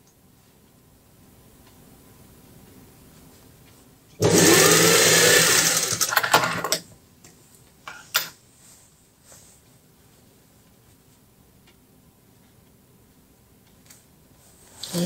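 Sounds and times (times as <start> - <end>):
sewing machine stitching: 4.2 - 6.8.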